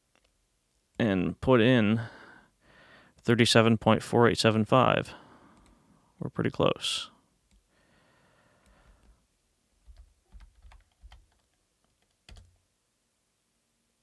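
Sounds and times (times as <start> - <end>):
keyboard keys typing: 9.8 - 12.6.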